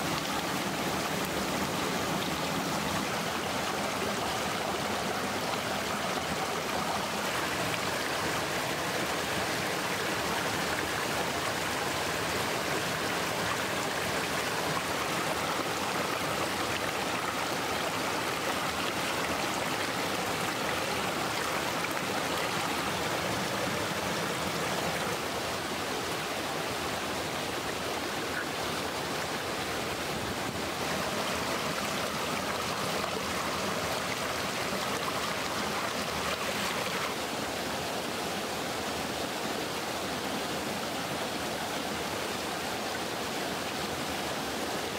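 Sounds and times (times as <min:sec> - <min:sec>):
water rushing over rocks: 0:00.0 - 0:44.9.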